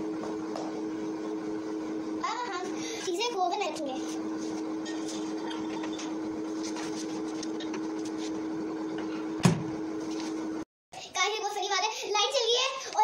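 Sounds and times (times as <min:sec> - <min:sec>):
microwave oven humming: 0:00.0 - 0:13.0
microwave door shutting: 0:09.0 - 0:09.8.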